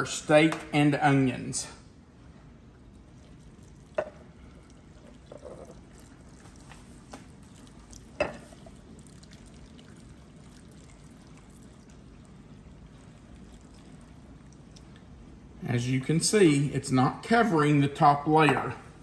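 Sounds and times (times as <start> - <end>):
liquid pouring in thin trickle: 2.8 - 15.2.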